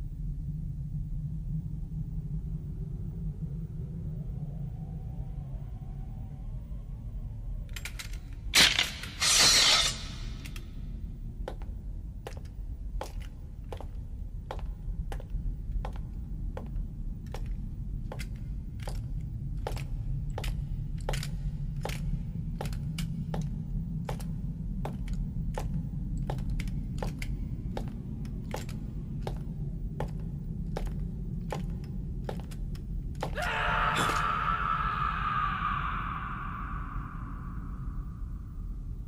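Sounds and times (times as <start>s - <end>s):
low rumbling drone: 0.0s - 9.2s, 9.8s - 39.0s
footsteps on stone floor: 11.4s - 33.4s.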